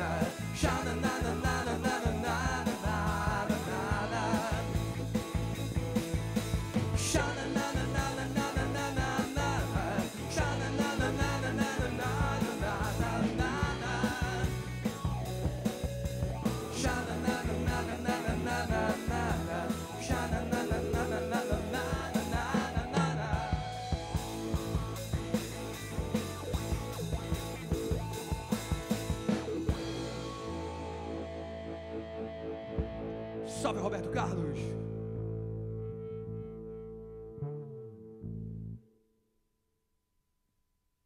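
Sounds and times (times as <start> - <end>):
man singing: 0.0 - 5.2, 6.9 - 15.0, 16.6 - 23.9
rock band playing live: 0.0 - 36.4.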